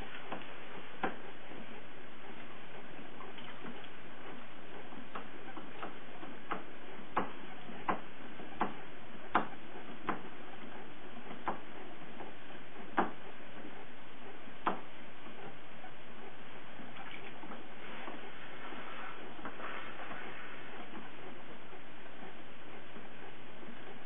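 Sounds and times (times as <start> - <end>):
steady hiss: 0.0 - 24.0.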